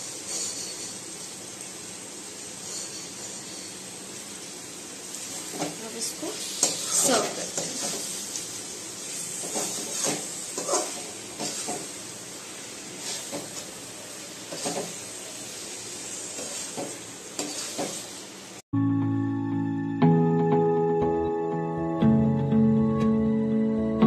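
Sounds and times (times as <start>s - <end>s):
chicken sizzling in a pan: 0.0s - 18.6s
metal spatula scraping a pan: 0.1s - 1.1s, 2.6s - 4.0s, 5.2s - 8.3s, 9.0s - 12.0s, 12.9s - 13.7s, 14.5s - 15.0s, 16.3s - 18.1s
soft background music: 18.8s - 24.0s.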